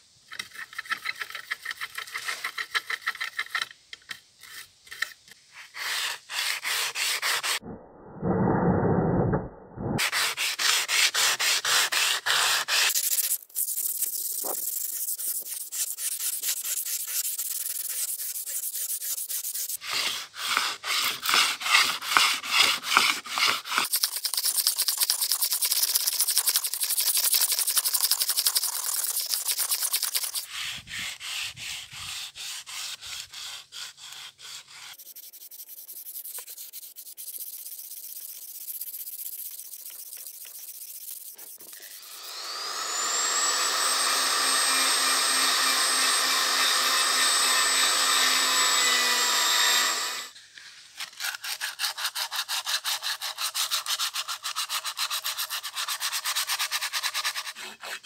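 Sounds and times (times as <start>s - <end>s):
sandpaper rasping on steel: 4.4s - 7.6s, 10.0s - 58.0s
rotary tool whining: 40.0s - 50.4s.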